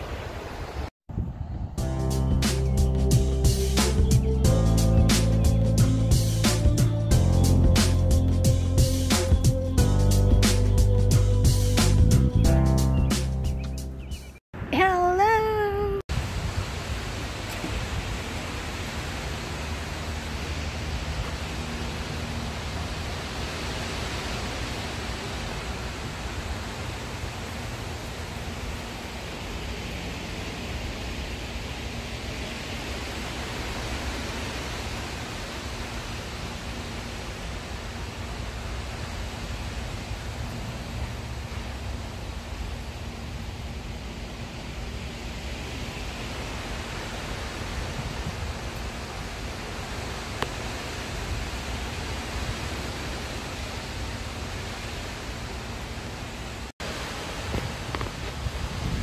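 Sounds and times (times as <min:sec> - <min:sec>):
wind buffeting microphone: 0:00.0 - 0:02.8, 0:16.1 - 0:21.5, 0:47.4 - 0:49.2, 0:57.3 - 0:59.0
wind rumble on microphone: 0:00.0 - 0:06.3, 0:16.1 - 0:59.0
wind rushing through trees: 0:00.0 - 0:14.8, 0:16.1 - 0:59.0.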